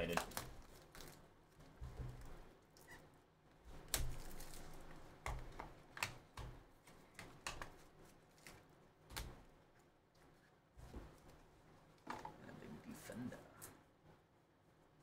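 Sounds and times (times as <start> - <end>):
plastic wrap and cardboard tearing: 0.0 - 1.6, 3.8 - 5.0
sharp crinkles and clicks: 0.0 - 1.7.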